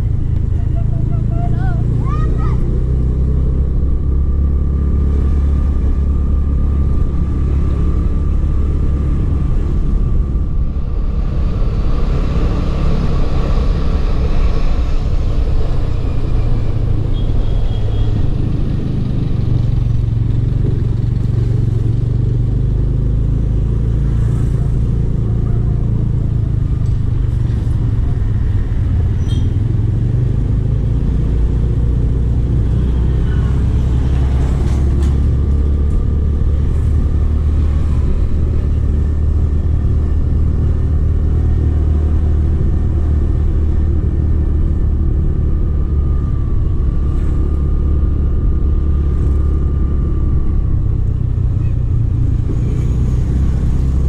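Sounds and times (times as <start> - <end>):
vehicle engine rumble: 0.0 - 54.0.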